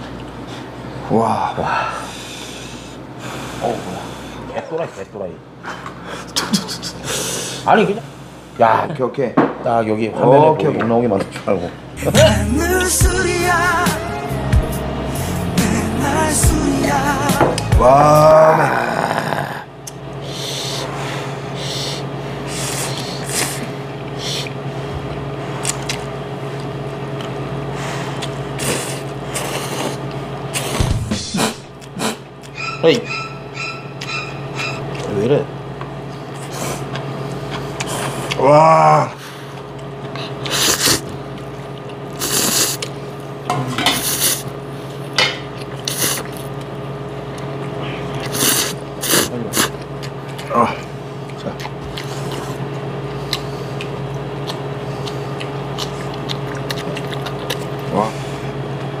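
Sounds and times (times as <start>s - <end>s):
steady low hum: 0.0s - 59.0s
low hum: 11.9s - 20.4s
people slurping noodles: 17.8s - 24.6s, 27.8s - 32.3s, 36.4s - 41.2s, 42.1s - 43.0s, 43.9s - 44.5s, 45.8s - 46.6s, 47.7s - 58.6s
noodles being slurped: 42.1s - 43.0s, 48.2s - 50.7s.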